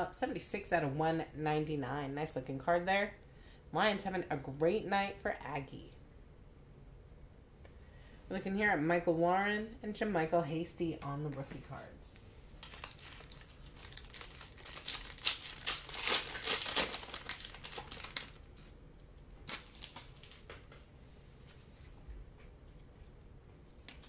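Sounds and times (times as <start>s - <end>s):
foil wrapper crinkling: 12.6s - 18.7s, 19.3s - 20.6s
cards rustling: 12.6s - 20.8s.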